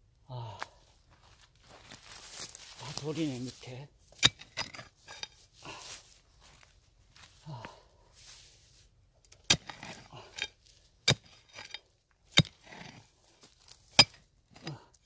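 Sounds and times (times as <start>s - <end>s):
soil and rock scraping: 1.6s - 6.6s, 7.2s - 15.0s.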